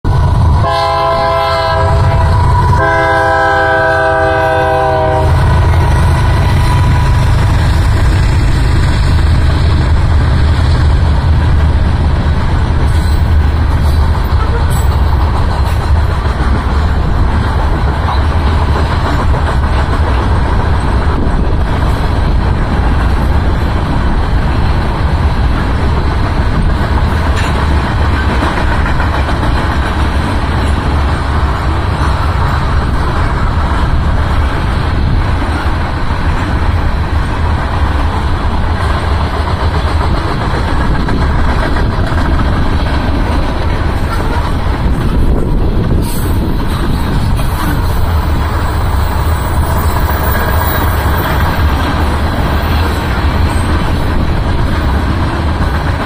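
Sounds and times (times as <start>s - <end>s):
train wheels rumbling on rails: 0.0s - 56.0s
train air horn: 0.3s - 7.4s.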